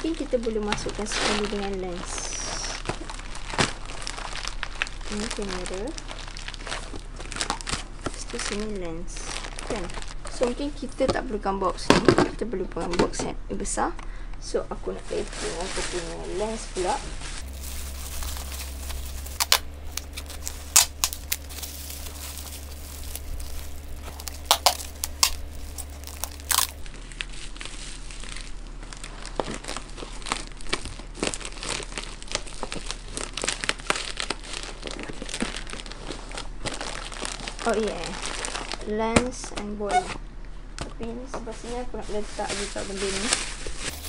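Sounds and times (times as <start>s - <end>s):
bubble wrap crinkling: 0.0s - 10.6s, 15.2s - 38.9s, 42.2s - 44.0s
packing tape ripping off roll: 17.4s - 28.5s, 43.3s - 44.0s.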